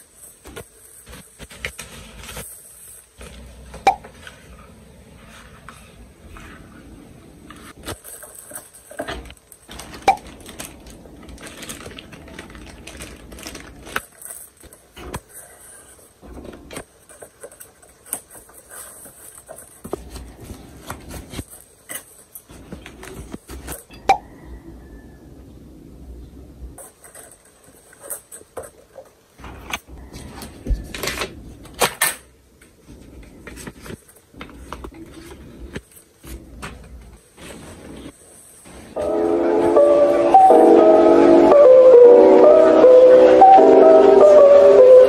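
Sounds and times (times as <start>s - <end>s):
packaging rustling and crinkling: 0.0s - 6.0s, 7.4s - 24.4s, 26.8s - 39.0s.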